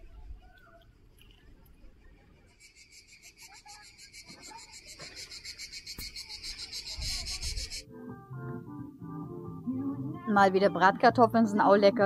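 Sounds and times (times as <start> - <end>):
cicadas buzzing: 2.1 - 7.8.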